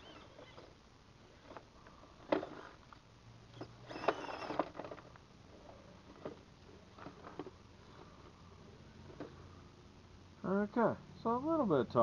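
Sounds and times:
toy car motor whine: 0:00.0 - 0:01.6, 0:02.2 - 0:02.8, 0:03.5 - 0:05.1
toy car scraping and clattering on rocks: 0:01.4 - 0:03.0, 0:03.6 - 0:05.2, 0:06.0 - 0:08.0.

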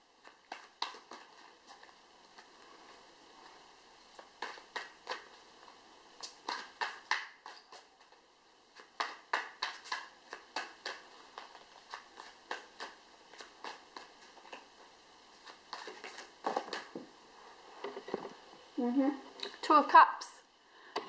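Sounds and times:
cards shuffling and tapping: 0:08.8 - 0:14.7, 0:15.4 - 0:17.1.

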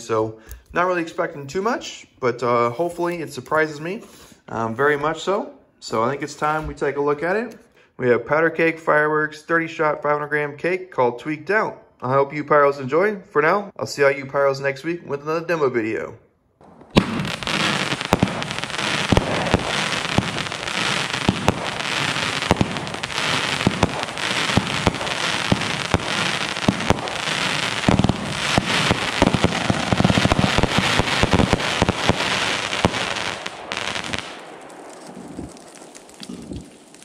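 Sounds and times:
firework launch thumps: 0:16.6 - 0:33.0
firework crackling and popping: 0:16.6 - 0:37.0.

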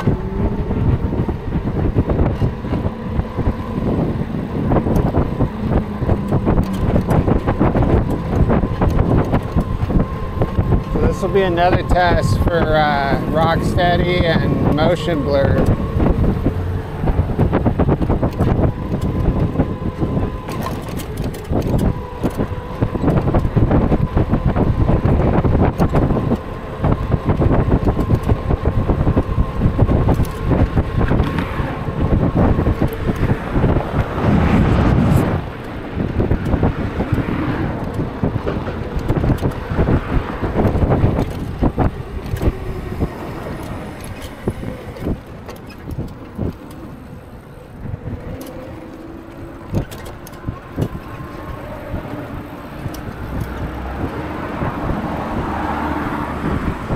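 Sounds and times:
thin steady whine: 0:00.0 - 0:56.9
vehicles passing: 0:00.0 - 0:56.9
wind buffeting microphone: 0:00.0 - 0:56.9.

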